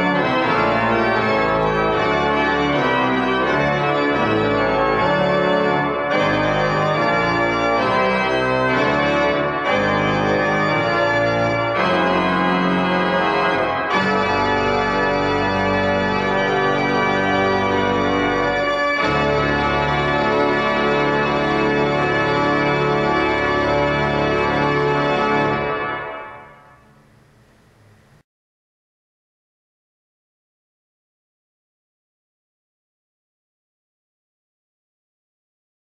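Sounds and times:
pipe organ playing chords: 0:00.0 - 0:28.2.

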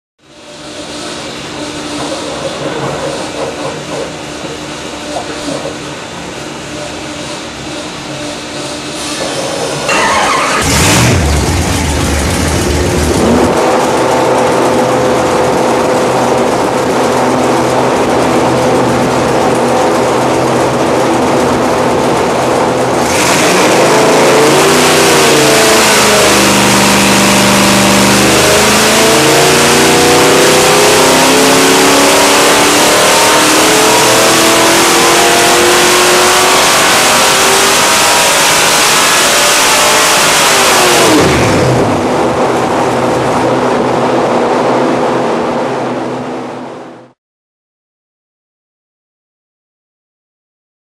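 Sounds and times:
engine revving on dyno: 0:09.0 - 0:47.2.

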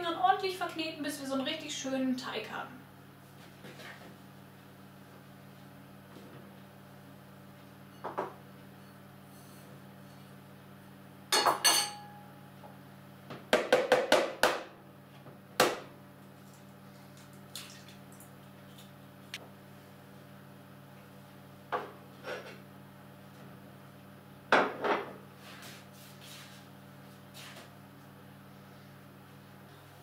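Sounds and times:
dishes clattering: 0:11.4 - 0:12.1
kitchenware clinking and knocking: 0:11.4 - 0:12.1.

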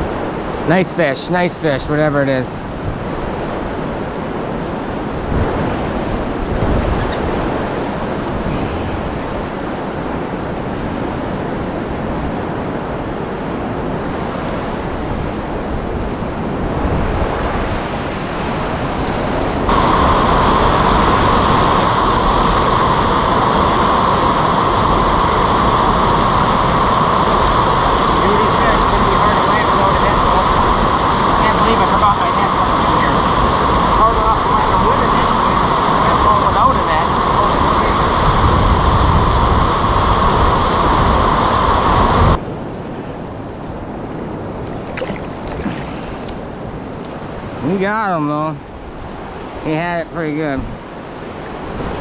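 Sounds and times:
river rapids rushing: 0:03.4 - 0:38.2.

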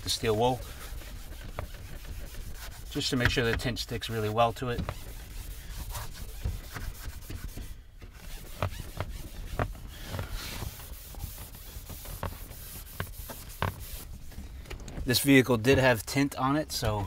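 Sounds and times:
steel wool scrubbing glass: 0:00.0 - 0:14.1.

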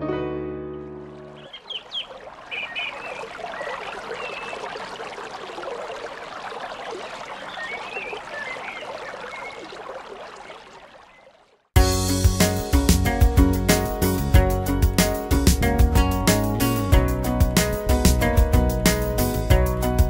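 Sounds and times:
water trickling: 0:00.8 - 0:11.8
high wavering chirps: 0:01.4 - 0:09.8.

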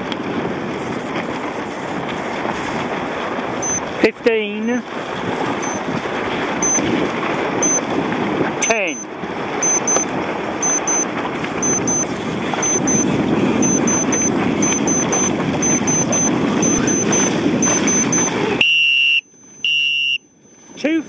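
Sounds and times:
wind and water on microphone: 0:00.0 - 0:21.0
timer electronic pips: 0:03.6 - 0:03.9, 0:05.6 - 0:05.8, 0:06.6 - 0:06.9, 0:07.6 - 0:07.9, 0:08.6 - 0:21.0.

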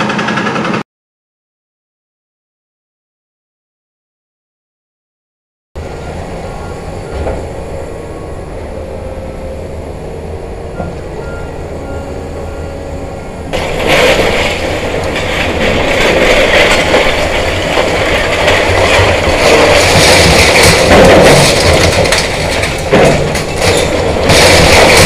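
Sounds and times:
low machinery rumble: 0:05.8 - 0:25.0
rough crunching and clattering: 0:13.5 - 0:25.0.

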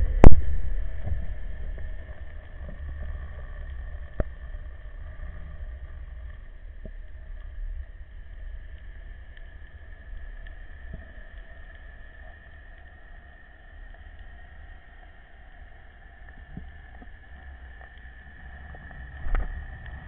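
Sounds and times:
faint high whine: 0:00.0 - 0:13.2
low underwater rumble: 0:00.0 - 0:20.0.

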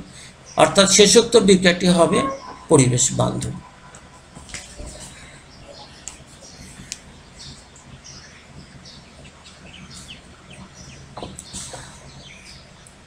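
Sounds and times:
low steady hum: 0:00.0 - 0:13.0
small birds chirping: 0:04.7 - 0:13.0.

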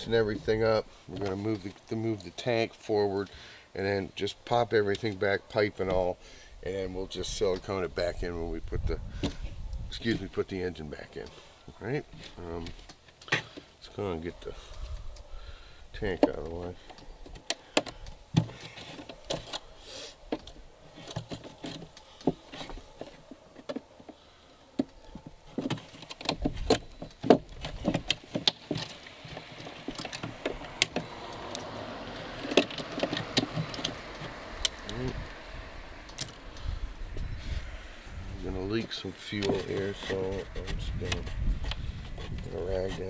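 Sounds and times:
hands clicking and rattling plastic: 0:20.3 - 0:31.7, 0:32.4 - 0:35.0.

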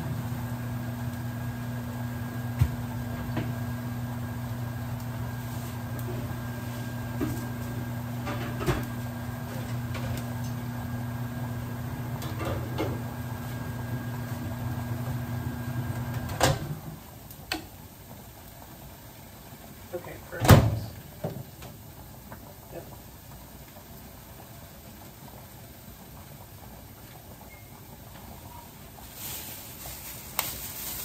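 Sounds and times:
microwave oven humming: 0:00.0 - 0:18.6.

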